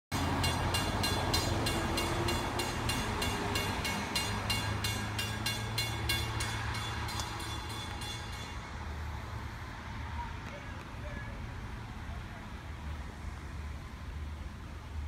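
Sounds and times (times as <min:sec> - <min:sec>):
crossing bell ringing: 0:00.1 - 0:09.2
diesel train rumble: 0:00.1 - 0:15.0.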